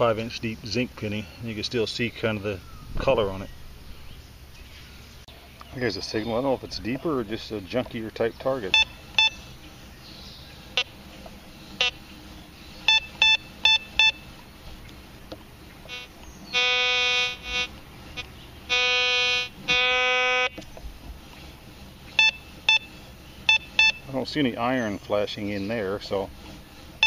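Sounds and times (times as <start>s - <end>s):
metal detector low steady tones: 6.0s - 14.8s, 15.6s - 20.7s, 21.5s - 26.4s
metal detector high beeps: 8.6s - 9.6s, 11.8s - 12.0s, 12.8s - 14.3s, 15.9s - 20.6s, 22.2s - 24.1s.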